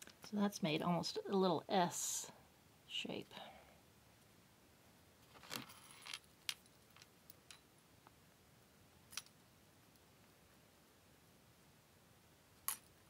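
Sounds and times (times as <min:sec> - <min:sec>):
metal chain clinking: 0:05.3 - 0:07.6.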